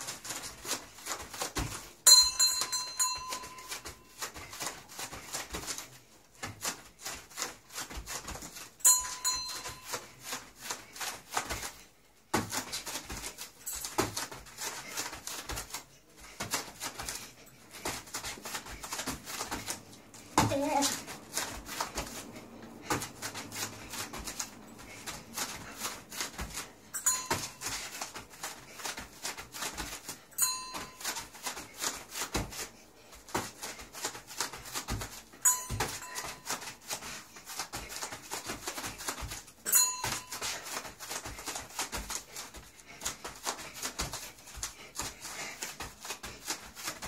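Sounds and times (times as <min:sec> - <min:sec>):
bare feet thumping on foam mat: 0:00.0 - 0:47.0
small brass bell ding: 0:02.1 - 0:03.7, 0:08.8 - 0:09.8, 0:27.0 - 0:27.6, 0:30.4 - 0:31.0, 0:35.4 - 0:36.4, 0:39.7 - 0:40.3.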